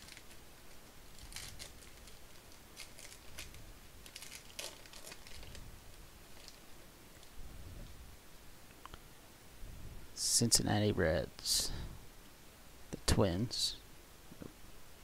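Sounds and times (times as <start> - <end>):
foil wrapper tearing and crinkling: 0.0 - 0.4, 1.1 - 5.7, 6.3 - 6.6.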